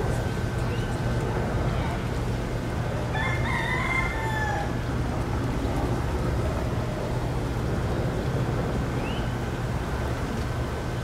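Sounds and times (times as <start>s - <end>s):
rooster crowing: 3.1s - 4.8s.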